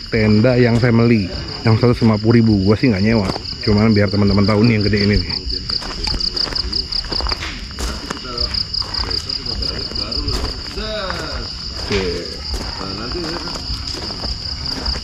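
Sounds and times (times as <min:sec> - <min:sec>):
crickets chirping: 0:00.0 - 0:15.0
people talking faintly: 0:03.2 - 0:15.0.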